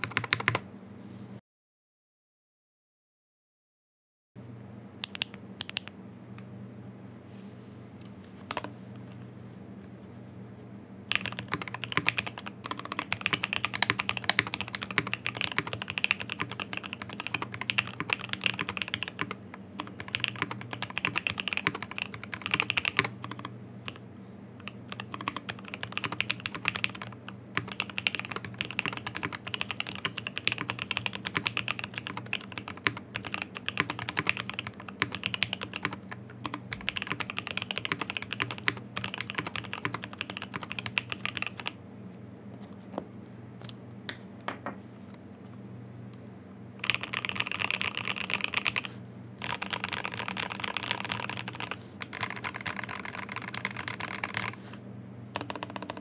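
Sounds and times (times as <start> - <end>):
mechanical keyboard typing: 0.0 - 0.6, 5.0 - 5.9, 11.1 - 24.0, 24.6 - 41.8, 46.8 - 54.6, 55.3 - 56.0.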